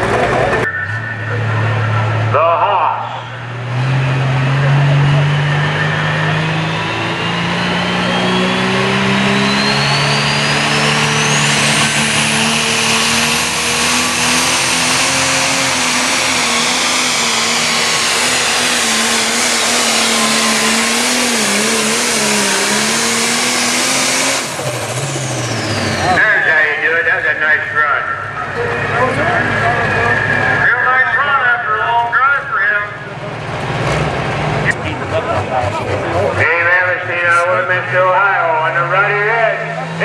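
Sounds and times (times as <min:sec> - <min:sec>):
diesel tractor engine at full throttle: 0:00.0 - 0:40.0
turbo whine: 0:00.2 - 0:31.4.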